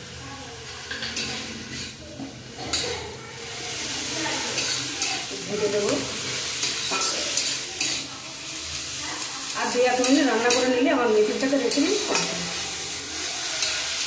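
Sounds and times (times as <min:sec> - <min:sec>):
greens sizzling in a pan: 0:00.0 - 0:14.0
metal spatula scraping a pan: 0:03.8 - 0:08.1, 0:09.6 - 0:14.0.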